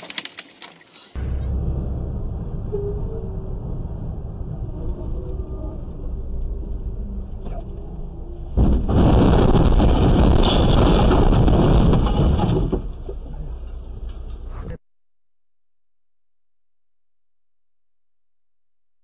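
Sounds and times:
truck engine and road rumble: 0:00.0 - 0:14.8.

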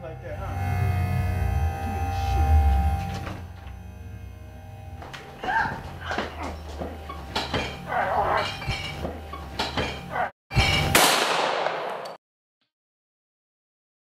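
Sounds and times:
people shouting: 0:05.4 - 0:06.6, 0:07.8 - 0:08.5, 0:10.1 - 0:10.3
people grunting: 0:05.4 - 0:08.7, 0:09.8 - 0:10.3.

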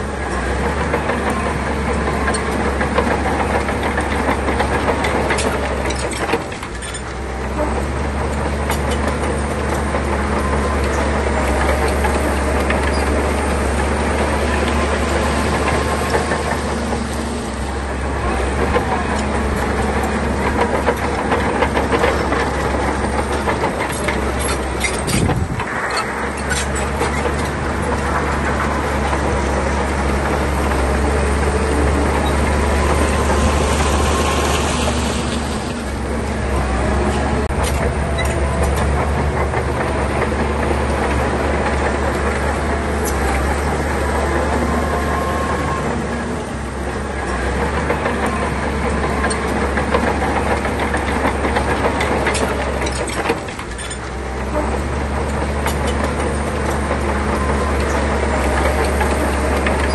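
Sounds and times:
bulldozer diesel engine: 0:00.0 - 0:59.9
steel tracks clanking: 0:00.0 - 0:59.9.

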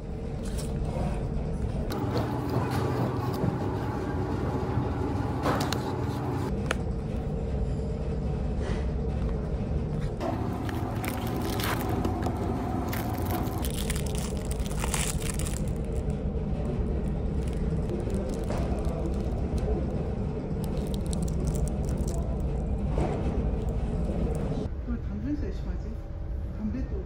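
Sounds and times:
ferry engines rumbling: 0:00.0 - 0:27.0
wrapper crinkling and tearing: 0:10.6 - 0:16.1, 0:17.0 - 0:19.9, 0:20.6 - 0:22.7.

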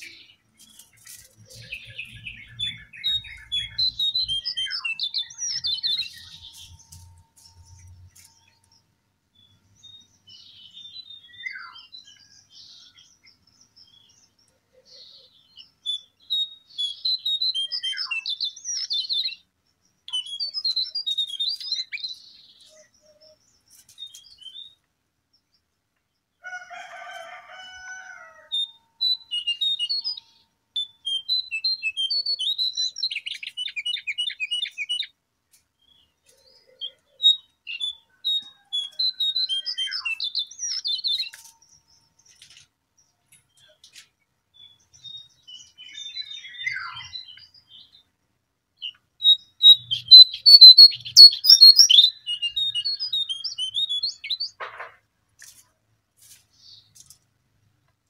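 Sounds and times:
bird chirping and trilling: 0:00.0 - 0:08.6, 0:09.4 - 0:19.5, 0:20.1 - 0:24.8, 0:28.6 - 0:35.1, 0:35.9 - 0:42.0, 0:44.6 - 0:48.0, 0:48.8 - 0:54.6.

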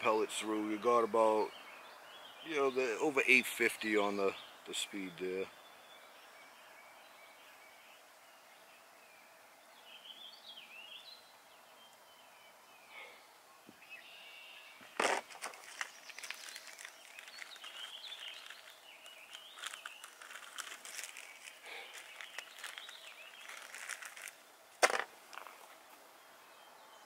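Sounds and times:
birds chirping: 0:00.0 - 0:27.0
small clicks and rustling: 0:15.0 - 0:25.8.

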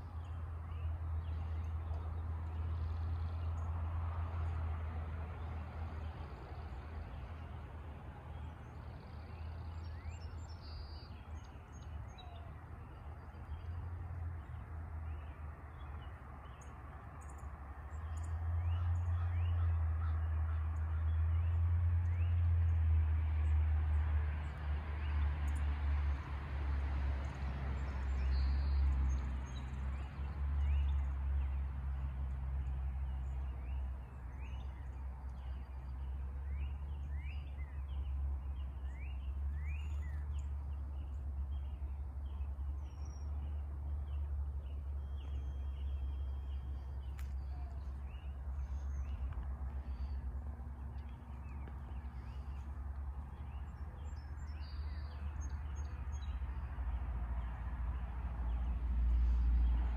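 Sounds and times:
small birds chirping: 0:27.2 - 0:59.9
steady low rumble: 0:30.6 - 0:59.9.

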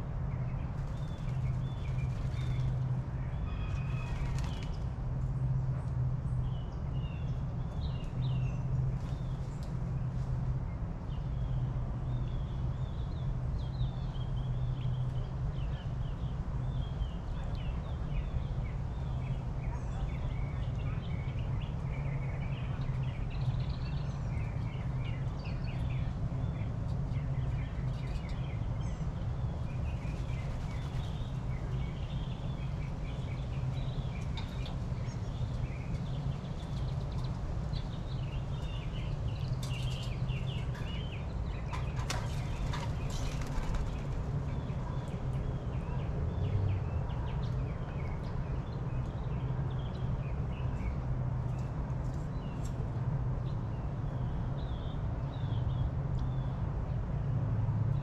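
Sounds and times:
small birds chirping: 0:00.4 - 0:04.9, 0:11.1 - 0:52.8.

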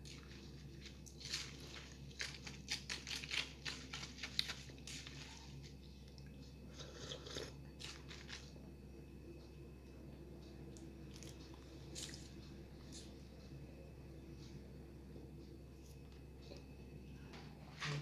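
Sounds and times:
steady low hum: 0:00.0 - 0:18.0
mouth sounds of eating: 0:06.2 - 0:08.2.

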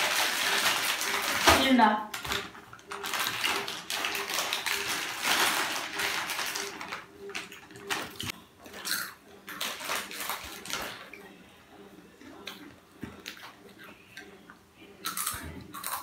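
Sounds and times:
foil packets crinkling: 0:00.0 - 0:08.8, 0:09.5 - 0:11.1.

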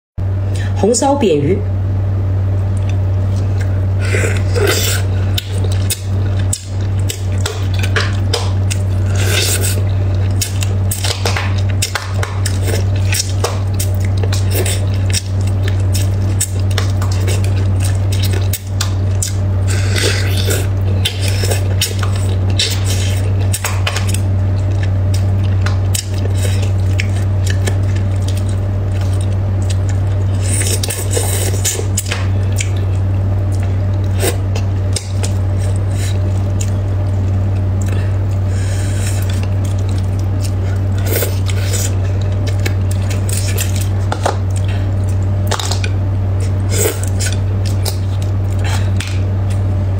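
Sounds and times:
loud steady low hum: 0:00.2 - 0:49.9
slurping: 0:02.8 - 0:32.9.

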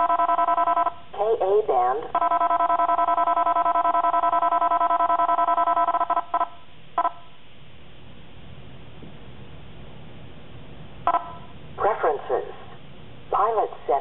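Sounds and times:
rapid electronic beeps: 0:11.1 - 0:11.5
single electronic beeps: 0:11.1 - 0:11.5.

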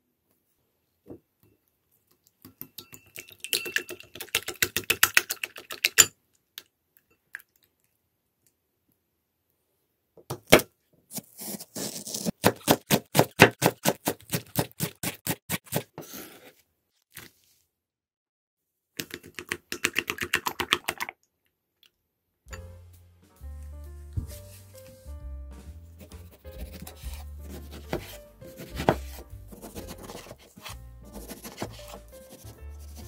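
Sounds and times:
eggs beaten in a bowl: 0:02.3 - 0:06.1, 0:19.0 - 0:21.2, 0:26.0 - 0:33.0
knife chopping on a wooden board: 0:11.5 - 0:15.8, 0:26.1 - 0:33.0.

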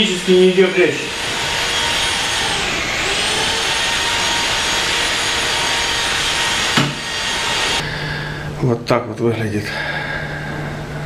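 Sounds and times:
rotary hammer drill running: 0:00.0 - 0:07.8.

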